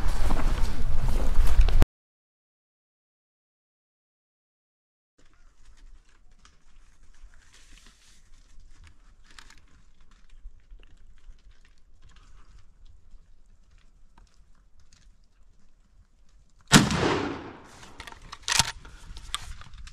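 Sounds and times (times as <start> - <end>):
rustling and light clicks: 5.2 - 16.7, 17.7 - 19.9.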